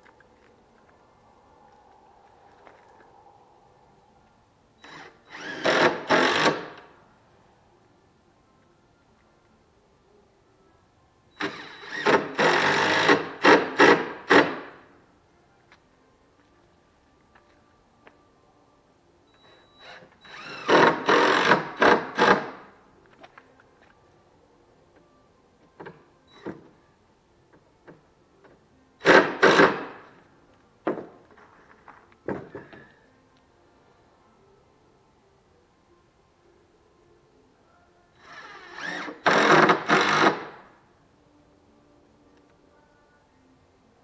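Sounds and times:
cordless drill driving screws: 0:04.8 - 0:06.8, 0:11.4 - 0:14.7, 0:19.8 - 0:22.6, 0:29.0 - 0:29.9, 0:38.2 - 0:40.6.

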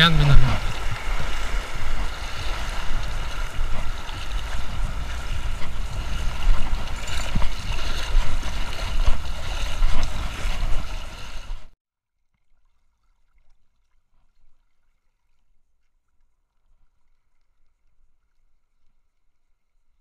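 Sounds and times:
wind rumbling on microphone: 0:00.0 - 0:11.7
seawater sloshing: 0:00.0 - 0:11.8
small waves breaking: 0:00.0 - 0:11.8.

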